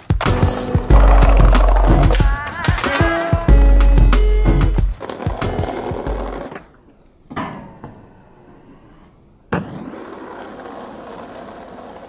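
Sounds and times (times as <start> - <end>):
skateboard landing: 0.0 - 3.5, 9.5 - 12.0
skateboard wheels rolling: 0.0 - 7.0, 7.8 - 12.0
skateboard wooden clack: 0.2 - 3.3.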